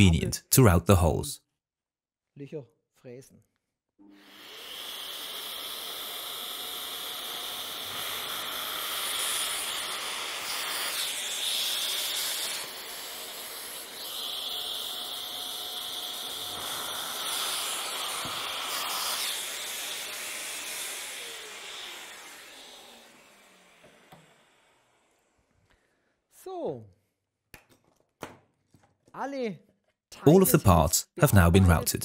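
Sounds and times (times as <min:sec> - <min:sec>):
drill boring into wood: 0:04.1 - 0:24.9.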